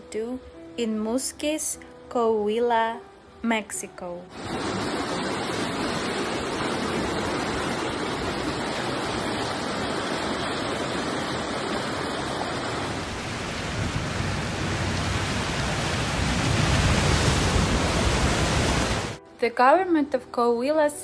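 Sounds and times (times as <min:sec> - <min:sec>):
floodwater rushing: 0:04.3 - 0:19.2.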